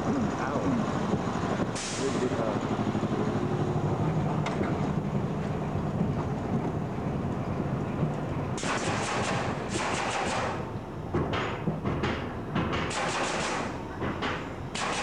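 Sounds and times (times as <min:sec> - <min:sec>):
roller coaster wheels rumbling: 0:00.0 - 0:08.6, 0:10.6 - 0:12.9
hiss burst: 0:01.8 - 0:02.2.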